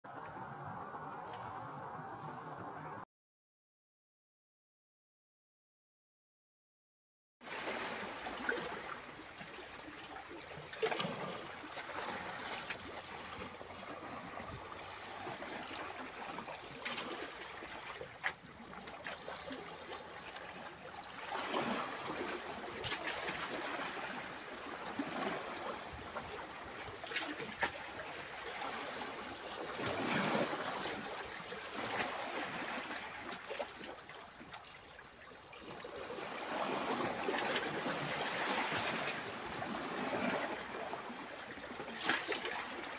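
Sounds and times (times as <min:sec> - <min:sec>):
waves washing over rocks: 0:19.5 - 0:33.8, 0:35.8 - 0:42.9.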